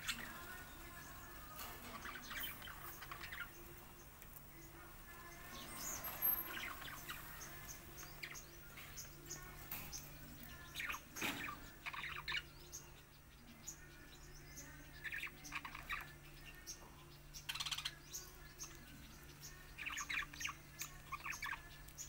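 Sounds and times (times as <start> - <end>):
budgerigars chirping: 0.0 - 4.2, 5.5 - 10.1, 10.7 - 13.8, 15.0 - 21.7.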